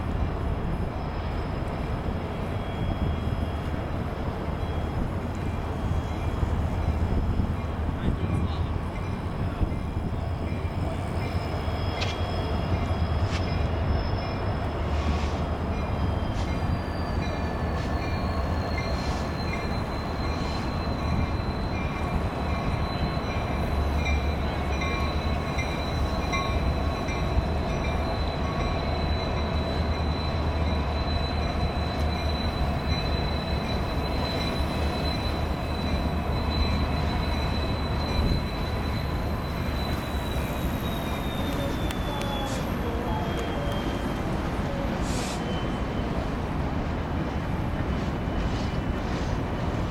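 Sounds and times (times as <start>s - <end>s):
freight train rumble: 0.0s - 49.9s
high-pitched wheel squeal: 9.6s - 46.2s.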